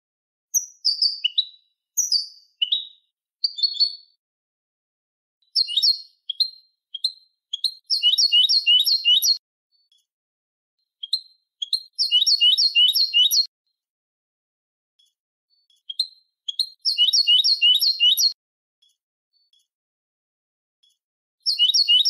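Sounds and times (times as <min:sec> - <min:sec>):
goldfinch singing: 0:00.5 - 0:04.1, 0:05.5 - 0:09.9, 0:11.0 - 0:13.5, 0:15.6 - 0:18.4, 0:21.4 - 0:22.0.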